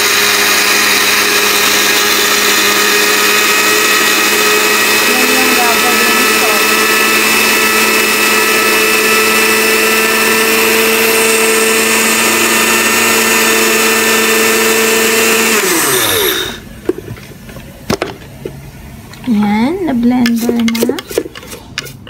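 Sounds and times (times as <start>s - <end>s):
blender motor grinding seeds: 0.0s - 16.6s.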